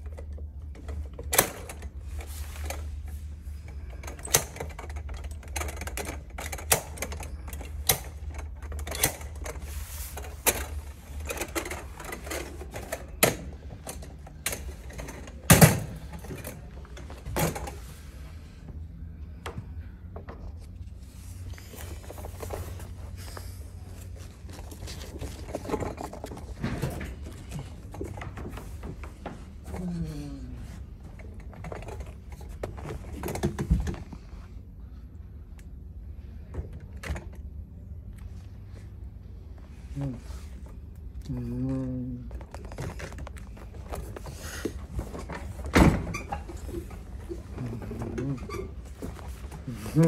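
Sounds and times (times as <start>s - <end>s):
metal frame clicking and rattling: 0.0s - 17.9s
steady low hum: 0.0s - 50.0s.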